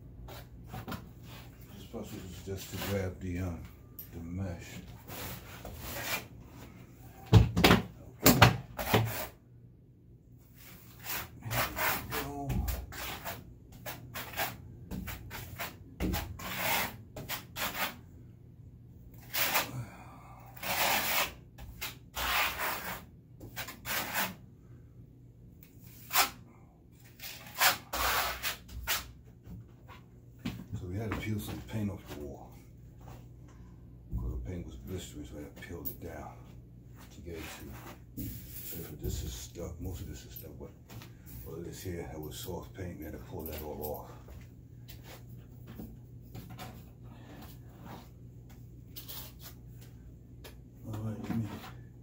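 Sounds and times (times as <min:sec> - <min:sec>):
trowel scraping across wall: 0:10.6 - 0:18.0, 0:19.2 - 0:19.7, 0:20.6 - 0:24.4, 0:27.1 - 0:29.1.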